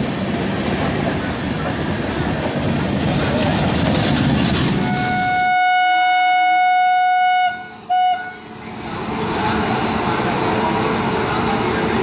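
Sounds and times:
train coaches rumbling: 0.0 - 6.6, 7.4 - 12.0
locomotive horn blasts: 4.8 - 8.5.

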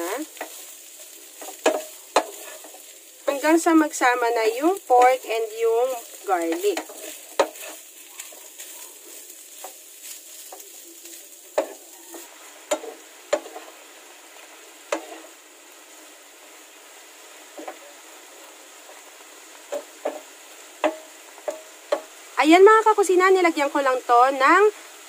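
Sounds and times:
meat sizzling in oil: 0.0 - 25.0
spatula knocking against pan: 12.7 - 13.6, 19.7 - 22.2.

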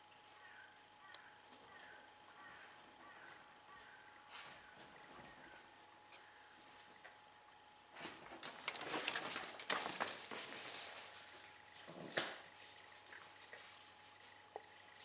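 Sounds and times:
dog claws clicking on tile: 8.4 - 15.0.

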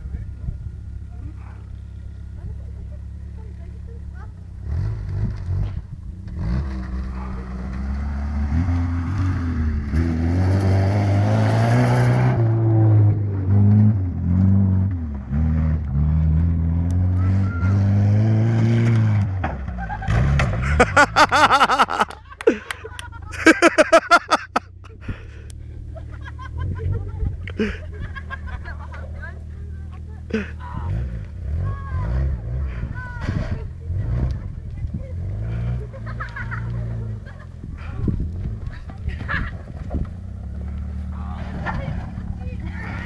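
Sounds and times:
car engine revving hard: 4.6 - 19.3
onlookers shouting and laughing: 19.7 - 25.2, 25.8 - 31.0, 31.6 - 40.0.

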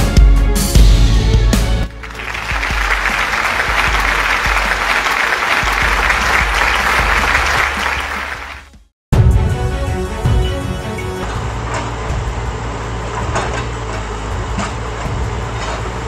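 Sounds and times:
music: 0.0 - 16.0
crowd applause: 1.9 - 8.8.

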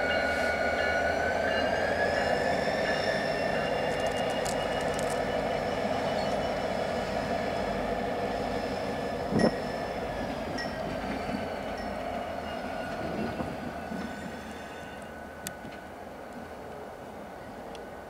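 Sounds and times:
diesel locomotive engines running: 0.0 - 18.0.

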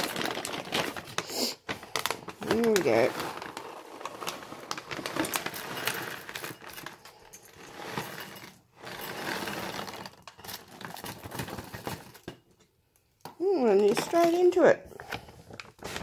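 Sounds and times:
kibble rattling into bowl: 2.4 - 12.3.

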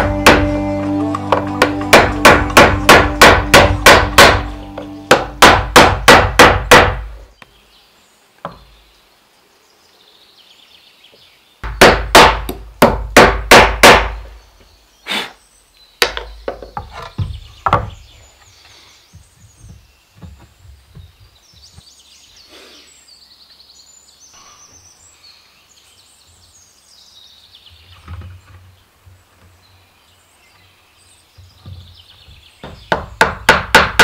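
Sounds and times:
hammer driving nails into wood: 0.0 - 0.5, 1.3 - 4.5, 5.1 - 7.2, 11.6 - 14.3, 32.6 - 34.0.

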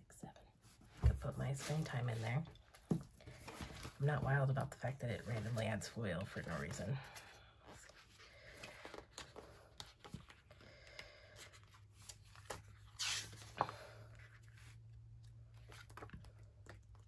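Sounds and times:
book pages turning: 5.2 - 17.0.

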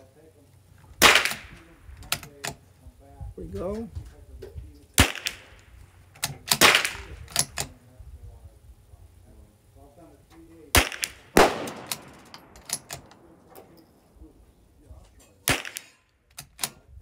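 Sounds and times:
rifle shots: 1.0 - 1.8, 5.0 - 7.6, 10.7 - 14.1, 15.4 - 16.0.

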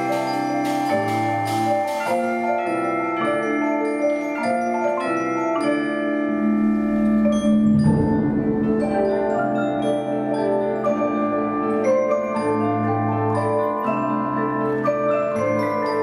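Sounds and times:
marimbas and vibraphones chords: 0.0 - 16.0
low rumble: 6.8 - 9.9.

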